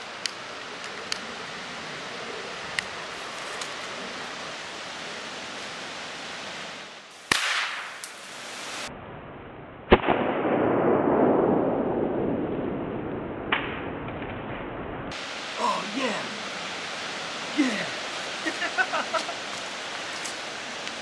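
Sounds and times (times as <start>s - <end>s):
sharp firecracker bang: 7.3s - 8.0s, 9.9s - 11.6s
rushing noise: 15.1s - 21.0s.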